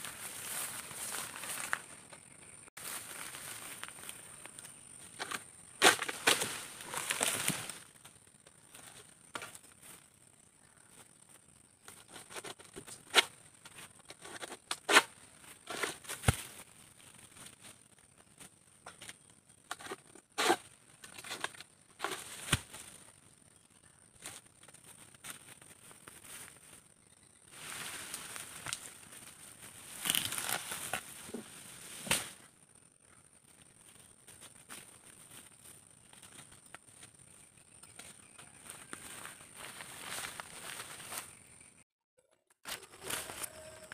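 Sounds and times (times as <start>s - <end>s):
dry vegetation crackling underfoot: 0.0s - 41.8s, 42.6s - 43.9s
sickle cracking and tearing fronds: 2.8s - 11.2s, 27.6s - 32.8s
sharp twig crack: 32.0s - 32.4s.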